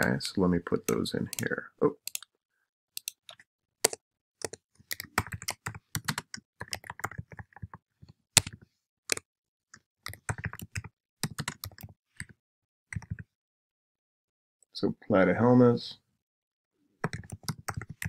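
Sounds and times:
typing on computer keyboard: 0:03.0 - 0:07.8, 0:08.4 - 0:09.2, 0:10.0 - 0:12.3, 0:13.0 - 0:13.2, 0:17.0 - 0:18.0.

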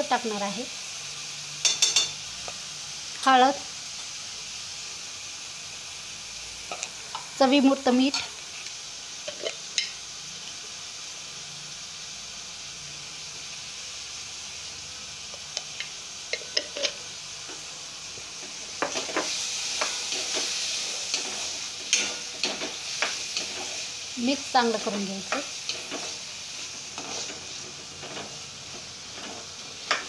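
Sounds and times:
peas sizzling in hot oil: 0:00.0 - 0:30.0
spatula scraping metal pan: 0:18.8 - 0:23.8, 0:25.3 - 0:30.0.

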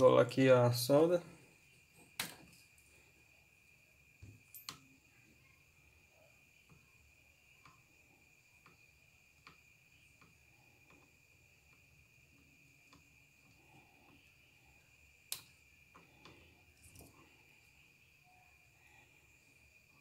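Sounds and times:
faint steady high tone: 0:02.8 - 0:20.0
faint handling of wire: 0:15.2 - 0:20.0.

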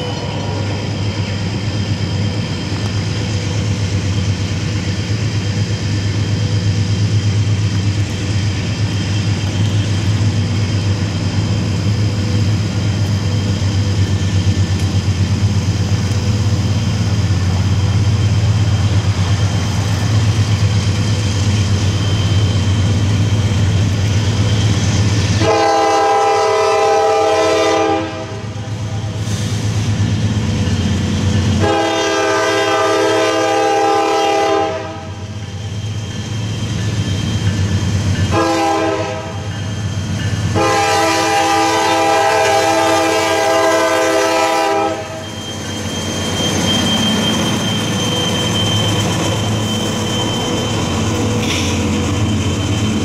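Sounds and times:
diesel locomotive rumble: 0:00.0 - 0:53.0
locomotive air horn blasts: 0:25.4 - 0:29.0, 0:31.6 - 0:35.2, 0:38.3 - 0:39.5, 0:40.5 - 0:45.2.

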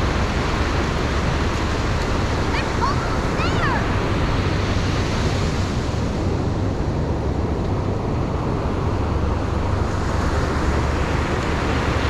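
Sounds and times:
ocean surf breaking: 0:00.0 - 0:06.3
wind rumbling on microphone: 0:00.0 - 0:12.0.

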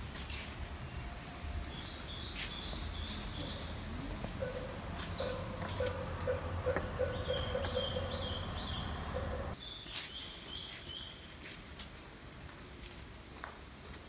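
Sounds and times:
forest ambience: 0:00.0 - 0:13.4
songbird calling: 0:01.7 - 0:11.1.

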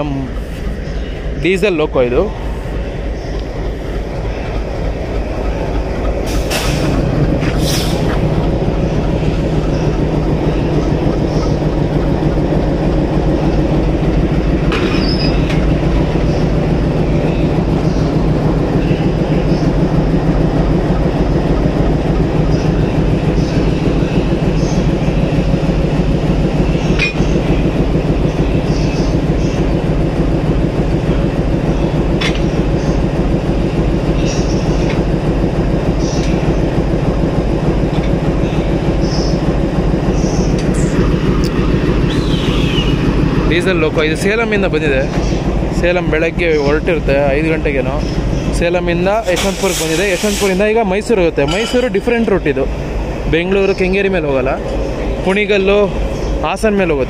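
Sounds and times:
diesel locomotive engine idling: 0:00.0 - 0:57.0
metallic clanks of coupling: 0:51.4 - 0:52.1.

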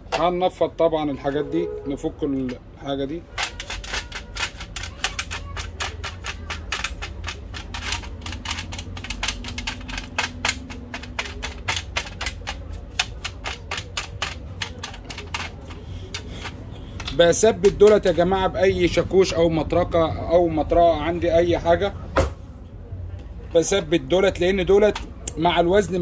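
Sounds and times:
screwdriver clicking on sheet metal: 0:03.3 - 0:18.0.

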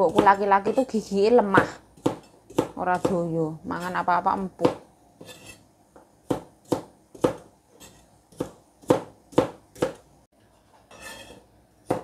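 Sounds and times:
knife chopping on cutting board: 0:00.0 - 0:00.8, 0:01.5 - 0:03.2, 0:04.6 - 0:10.1, 0:11.0 - 0:12.0.

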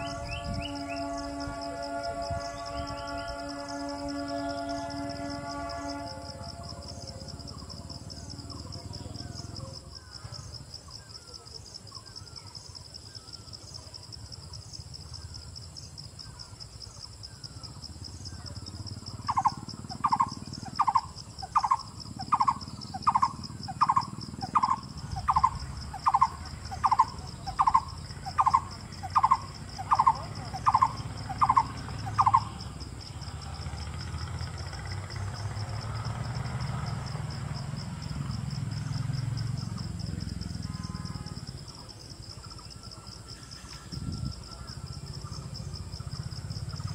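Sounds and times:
bird calling evenly spaced notes: 0:00.0 - 0:13.9, 0:16.3 - 0:36.0
fast-pulsing insect trill: 0:00.0 - 0:46.9.

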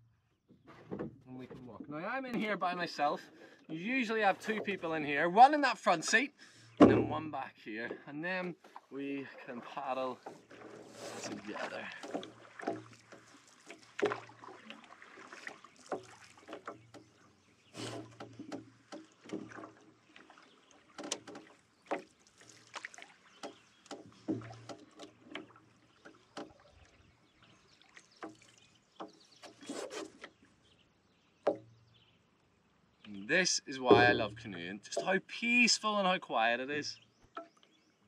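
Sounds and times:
paddle strokes and splashes: 0:00.5 - 0:07.2, 0:07.8 - 0:32.9
light knocks on canoe hull: 0:06.7 - 0:08.8, 0:10.2 - 0:14.6, 0:15.2 - 0:26.7, 0:28.2 - 0:30.4, 0:31.4 - 0:31.8, 0:33.9 - 0:35.2.

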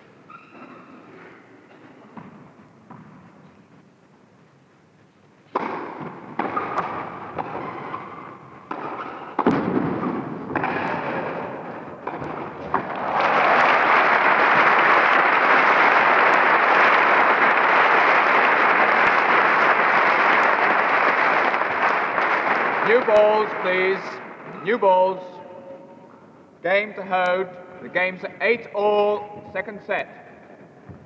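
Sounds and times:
racket hitting tennis ball: 0:05.5 - 0:13.2
crowd applause: 0:11.0 - 0:24.4.

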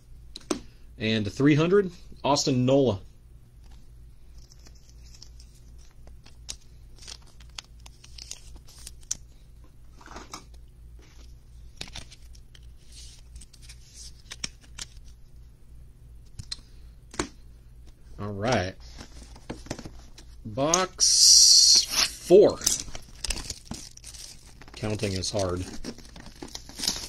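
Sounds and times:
plastic sleeve rustling and scraping: 0:04.4 - 0:09.2, 0:09.9 - 0:15.2, 0:21.9 - 0:27.0.

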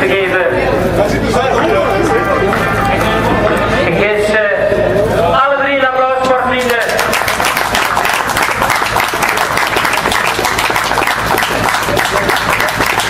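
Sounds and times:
crowd applauding: 0:06.5 - 0:13.0.

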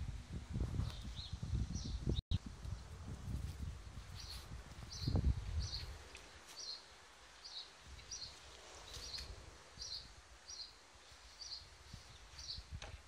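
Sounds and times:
small bird chirping: 0:04.1 - 0:12.7.

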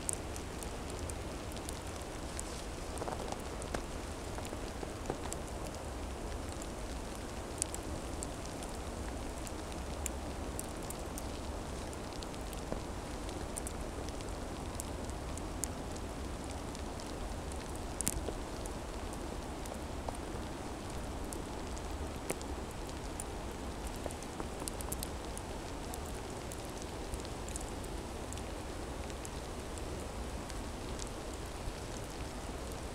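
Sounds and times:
wet snow pattering on branches: 0:00.3 - 0:05.7.

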